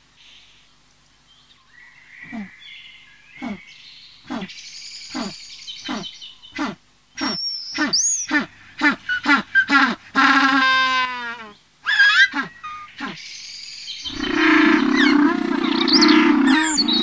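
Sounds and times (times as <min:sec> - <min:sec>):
animal-like calls falling in pitch: 0:14.1 - 0:17.0.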